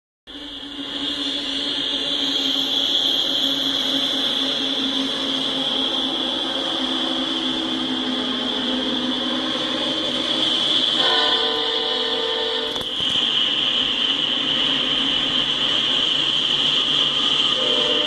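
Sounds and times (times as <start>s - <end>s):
diesel locomotive engines droning: 0.3s - 18.0s
train rumble: 0.3s - 18.0s
train horn: 10.9s - 12.9s, 17.6s - 18.0s.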